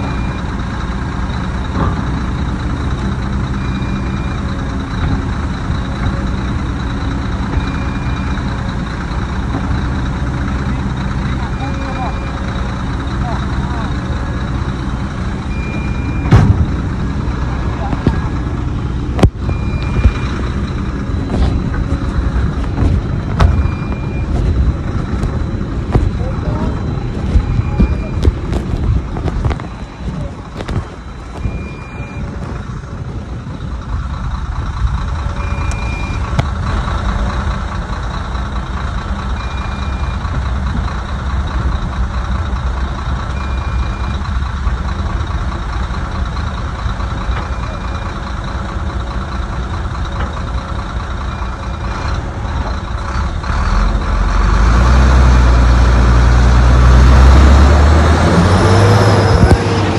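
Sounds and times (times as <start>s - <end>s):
high warning beep: 0.0s - 0.5s, 7.4s - 8.6s, 11.0s - 14.6s, 15.4s - 18.2s, 19.3s - 22.4s, 23.2s - 32.4s, 35.3s - 36.4s, 39.3s - 40.3s, 43.3s - 44.2s
heavy diesel machinery running: 0.0s - 59.9s.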